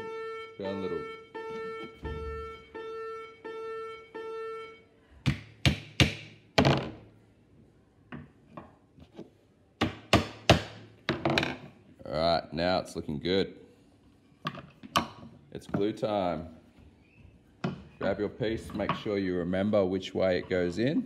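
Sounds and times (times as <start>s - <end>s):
hammer striking nails: 5.2s - 6.9s, 9.8s - 11.2s.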